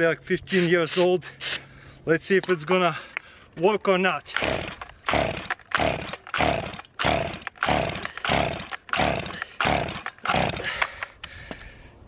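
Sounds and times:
engine turning over with rasping whir: 0:04.3 - 0:10.8
chainsaw recoil starter pulls: 0:04.3 - 0:11.1.

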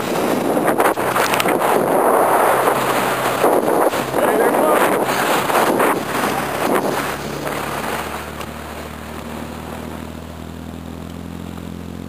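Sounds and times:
wind buffeting microphone: 0:00.0 - 0:10.6
boat engine drone: 0:00.0 - 0:12.0.

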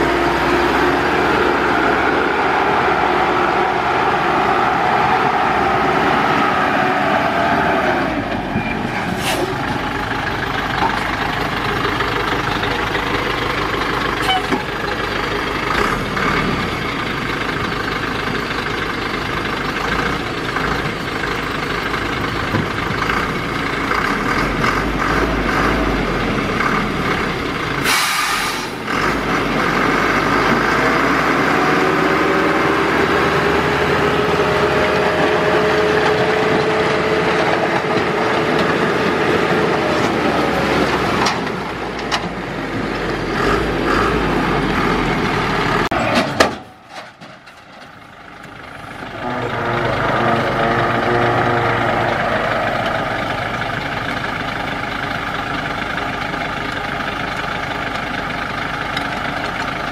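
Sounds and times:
diesel truck engine running: 0:00.0 - 0:59.9
air hiss: 0:27.8 - 0:28.8.

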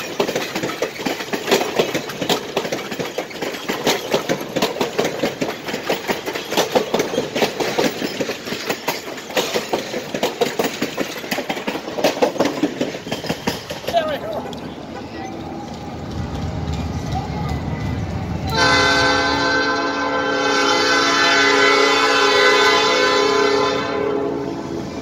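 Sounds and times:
train wheels clattering on rails: 0:00.0 - 0:20.0
train rumble: 0:00.0 - 0:25.0.

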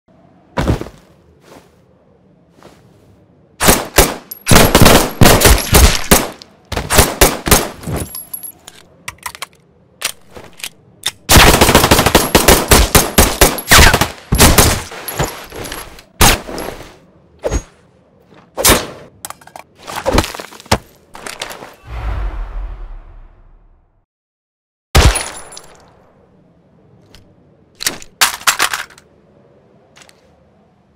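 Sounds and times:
automatic gunfire bursts: 0:11.3 - 0:14.7.

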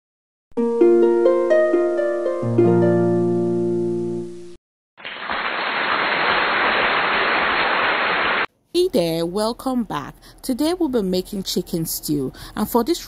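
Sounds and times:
steady hiss: 0:05.0 - 0:08.5.

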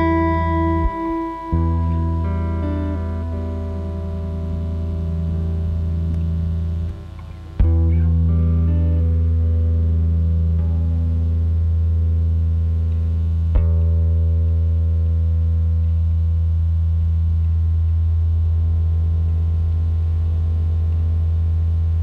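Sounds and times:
loud low drone: 0:00.0 - 0:22.0.

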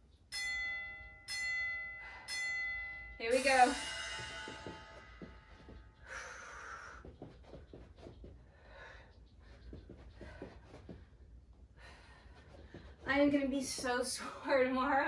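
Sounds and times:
feet shuffling on floor: 0:04.4 - 0:06.0, 0:06.8 - 0:08.4, 0:09.4 - 0:11.2, 0:12.1 - 0:14.2
woman breathing hard: 0:05.2 - 0:13.0.

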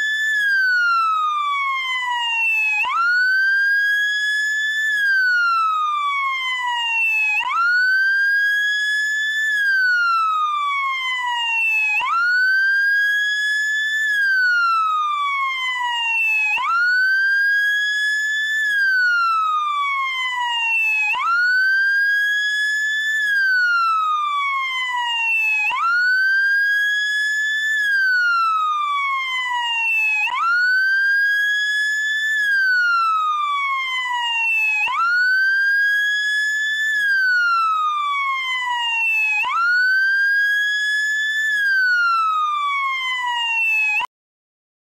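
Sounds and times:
electronic wail siren: 0:00.0 - 0:44.1.

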